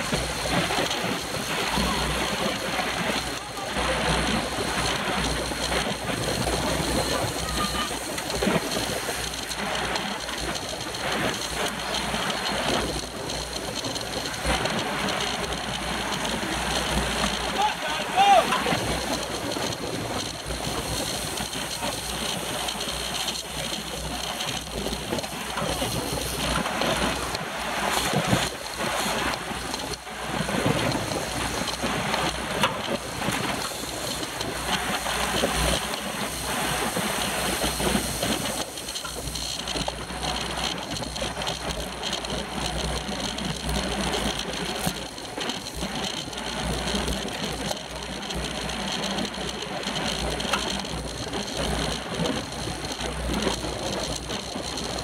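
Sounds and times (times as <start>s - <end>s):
road noise: 0.0s - 55.0s
wind buffeting microphone: 0.0s - 55.0s.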